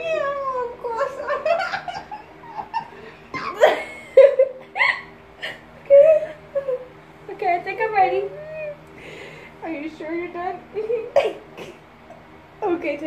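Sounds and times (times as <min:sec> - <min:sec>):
girls laughing and giggling: 0:00.9 - 0:07.0.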